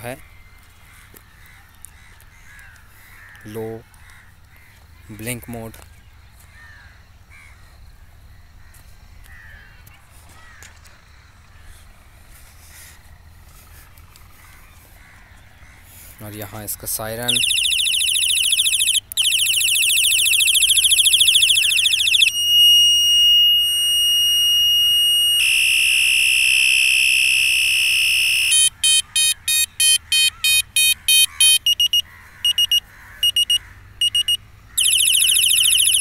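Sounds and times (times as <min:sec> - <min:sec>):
electronic bicycle light siren: 0:17.2 - 0:36.0.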